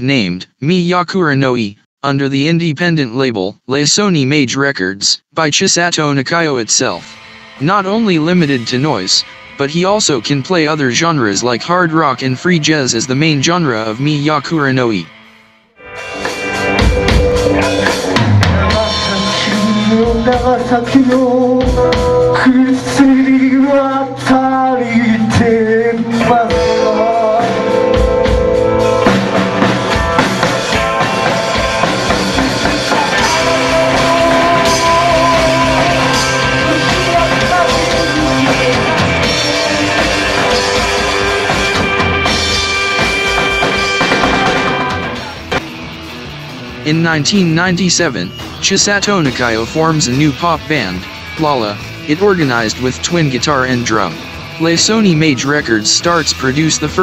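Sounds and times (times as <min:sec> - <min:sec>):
electric guitars: 0:07.0 - 0:07.6, 0:15.1 - 0:57.0
drum kit: 0:15.8 - 0:57.0
person singing: 0:16.0 - 0:28.5, 0:31.2 - 0:45.5.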